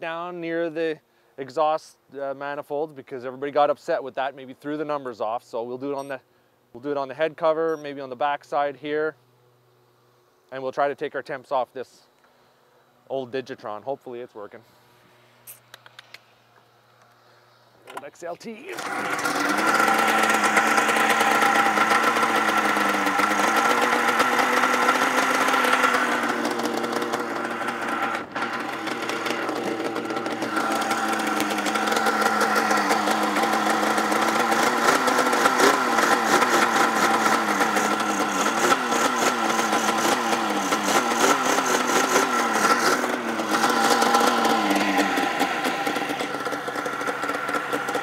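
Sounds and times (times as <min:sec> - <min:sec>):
snowmobile engine running: 0:18.7 - 0:48.0.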